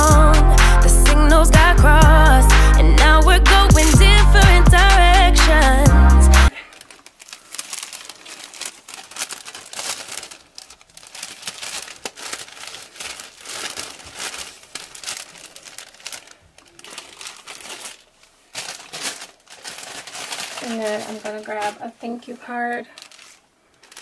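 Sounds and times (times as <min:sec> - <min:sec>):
cellophane and paper crinkling: 0:06.5 - 0:24.0.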